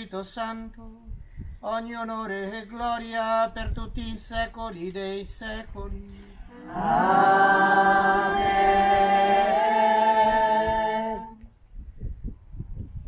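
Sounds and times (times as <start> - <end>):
voices singing unaccompanied amen: 6.4 - 11.5.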